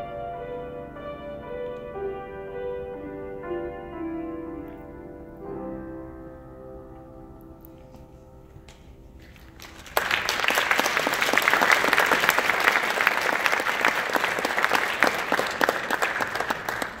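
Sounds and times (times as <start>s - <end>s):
grand piano chord: 0.0s - 9.3s
audience applause: 9.2s - 17.0s.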